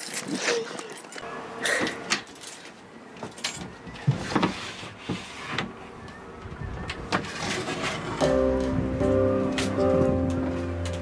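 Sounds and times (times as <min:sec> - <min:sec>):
hatch knocks and sliding scrapes: 0:04.1 - 0:05.7, 0:07.2 - 0:08.2
background music: 0:08.2 - 0:11.0.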